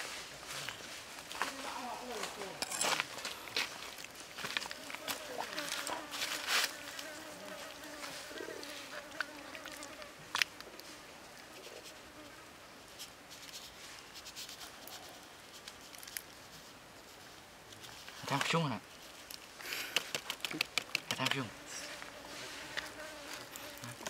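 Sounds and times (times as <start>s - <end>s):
flying insect buzzing: 4.7s - 12.5s, 19.8s - 24.0s.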